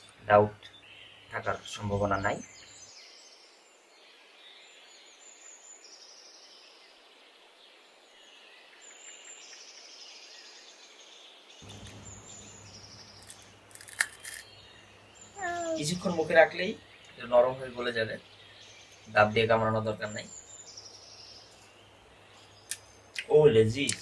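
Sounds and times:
birds chirping: 0.0s - 24.0s
low room hum: 11.6s - 15.9s.

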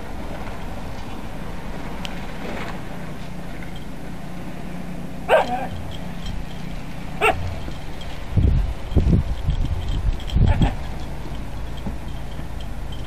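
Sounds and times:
steady low hum: 0.0s - 13.0s
dog barking: 5.3s - 5.8s, 7.2s - 7.5s
low rumbling thumps: 5.6s - 13.0s.

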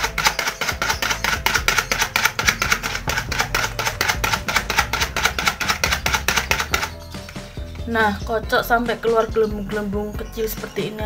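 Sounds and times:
fork beating eggs in bowl: 0.0s - 7.7s.

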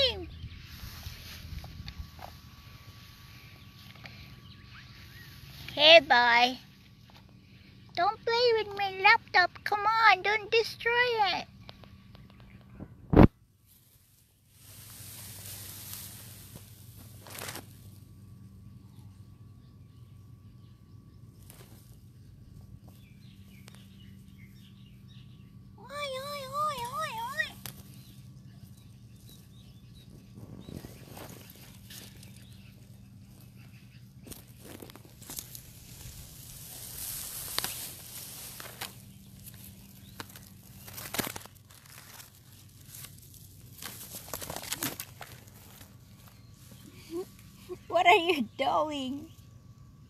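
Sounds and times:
faint bird chirps: 0.0s - 6.0s, 17.9s - 40.9s
steady low hum: 0.0s - 50.0s.

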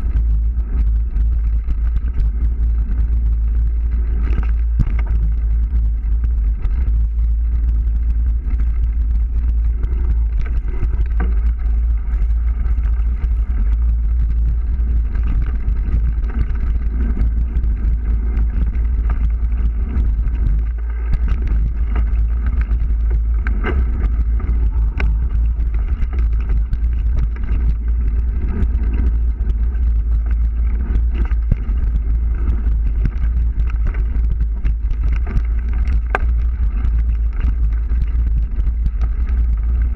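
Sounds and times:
bike rattling over ground: 0.0s - 39.9s
wind rumble on microphone: 0.0s - 39.9s.

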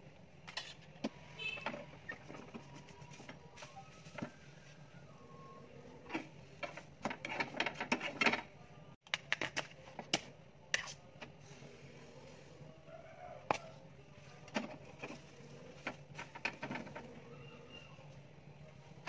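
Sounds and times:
spatula scraping frying pan: 6.1s - 8.3s.

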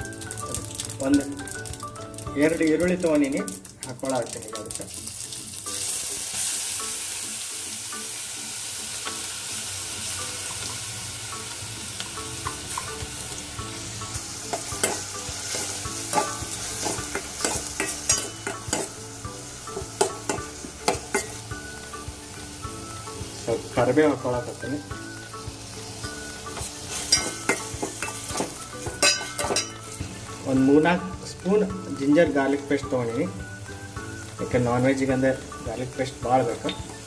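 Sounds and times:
onions sizzling in hot oil: 0.0s - 37.0s
bowl clinking against pot: 16.1s - 18.9s, 27.1s - 29.8s.

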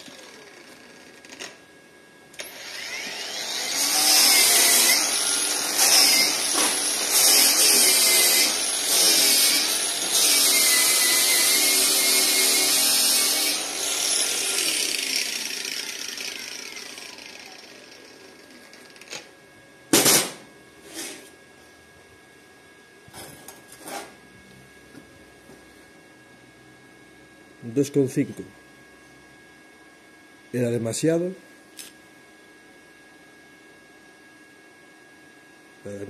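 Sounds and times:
grinder spinning down: 0.0s - 1.6s, 2.4s - 19.2s
angle grinder wire brush scrubbing steel: 3.7s - 16.3s.

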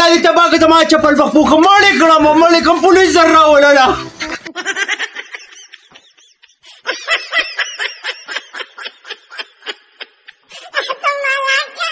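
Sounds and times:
snickering laughter: 4.2s - 11.0s.

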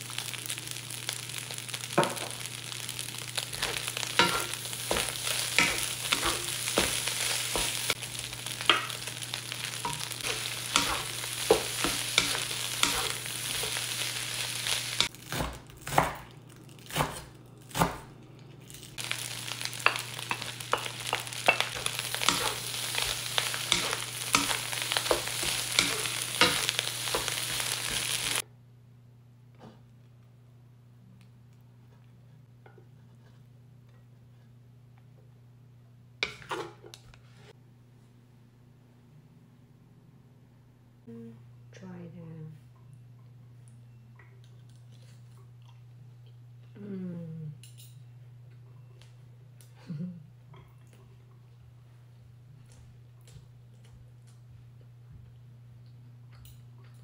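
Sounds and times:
fried rice sizzling in a wok: 0.0s - 15.5s, 18.7s - 28.4s.

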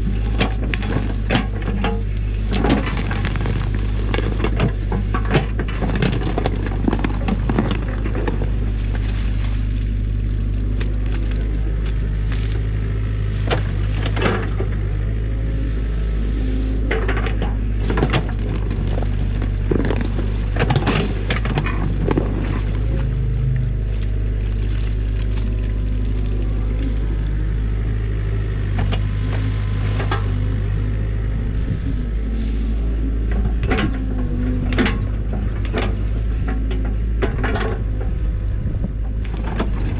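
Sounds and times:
bucket knocking and scraping: 0.0s - 10.4s
excavator diesel engine running: 0.0s - 39.9s.

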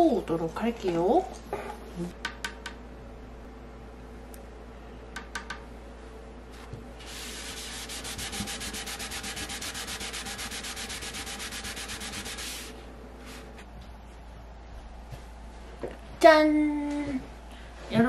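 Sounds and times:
sponge scrubbing wooden surface: 7.0s - 12.7s.

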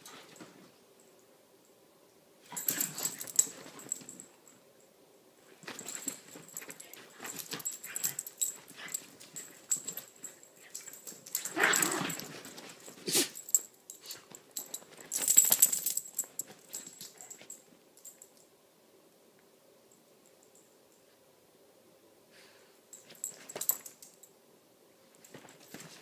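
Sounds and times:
small dogs play noises: 2.4s - 4.3s, 5.5s - 17.8s.

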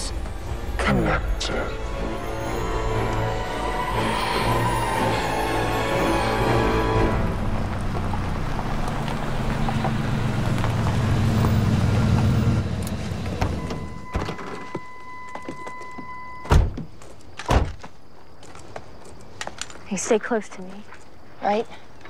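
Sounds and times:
steady high tone: 0.0s - 8.4s
pickup truck engine running: 6.7s - 13.6s.

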